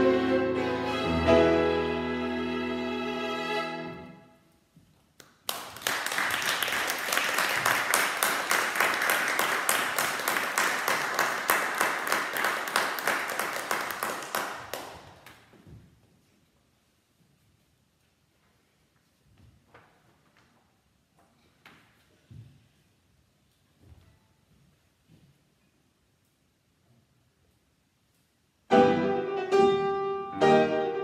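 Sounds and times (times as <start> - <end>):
violin and piano chord: 0.0 - 4.3, 28.7 - 31.0
audience applauding: 5.4 - 15.3.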